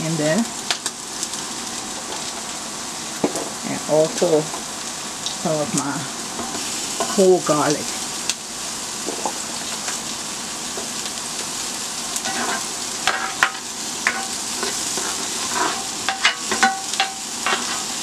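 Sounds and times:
steak sizzling in a skillet: 0:00.0 - 0:18.0
utensil scraping a pan: 0:12.2 - 0:18.0.

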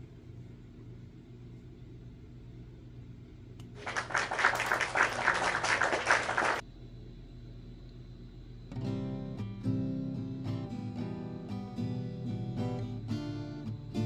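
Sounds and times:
faint low hum: 0:00.0 - 0:14.0
audience applause: 0:03.8 - 0:06.6.

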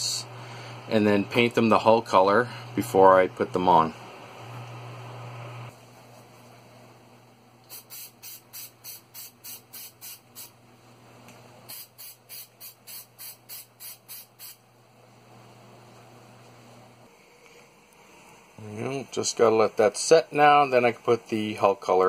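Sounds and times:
spray paint hissing bursts: 0:07.7 - 0:10.6, 0:11.7 - 0:14.6.

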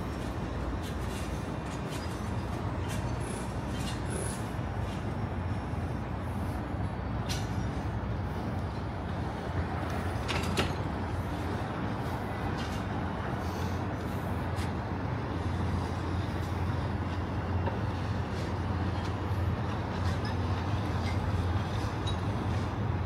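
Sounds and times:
city traffic rumble: 0:00.0 - 0:23.0.

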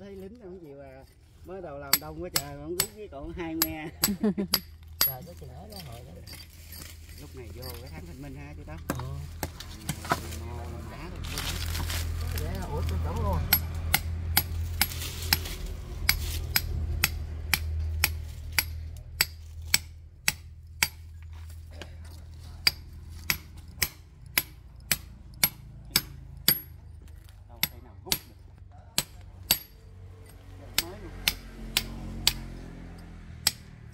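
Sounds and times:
hammer striking concrete: 0:01.8 - 0:06.4, 0:08.8 - 0:10.2, 0:13.1 - 0:21.1, 0:22.6 - 0:29.8, 0:30.7 - 0:32.6, 0:33.4 - 0:33.9.

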